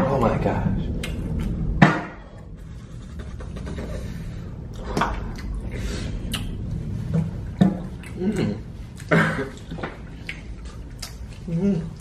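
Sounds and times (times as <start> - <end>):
mouth and eating clicks: 1.0 - 1.7, 6.2 - 6.7, 7.9 - 12.0.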